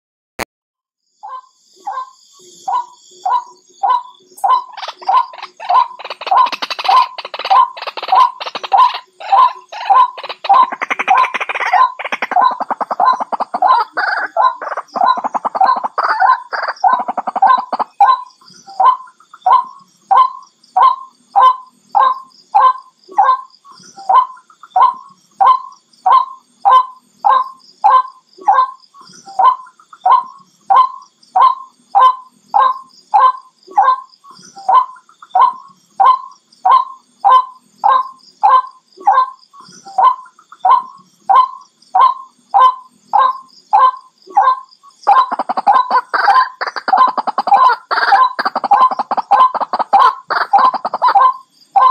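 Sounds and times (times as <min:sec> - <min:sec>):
waterhen calling: 0:03.3 - 0:18.2, 0:45.0 - 0:51.9.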